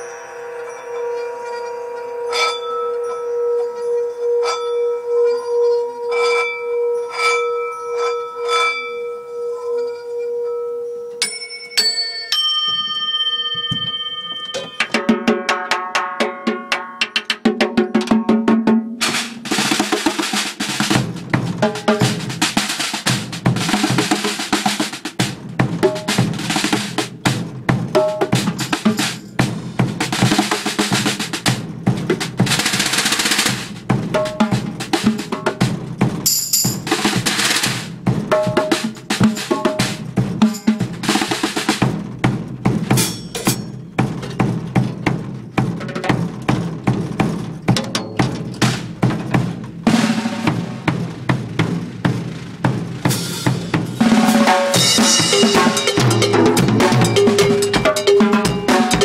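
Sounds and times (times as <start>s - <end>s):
singing bowl ringing: 0.0s - 15.3s
high ringing tones: 0.0s - 16.6s, 39.0s - 41.3s, 54.7s - 59.0s
snare drum roll by hand: 14.8s - 59.0s.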